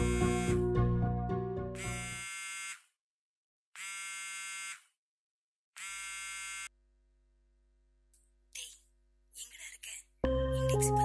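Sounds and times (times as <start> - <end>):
mobile phone buzzing: 0.0 - 0.8, 1.7 - 3.0, 3.8 - 5.0, 5.8 - 6.7
background music: 0.0 - 2.2, 10.2 - 11.0.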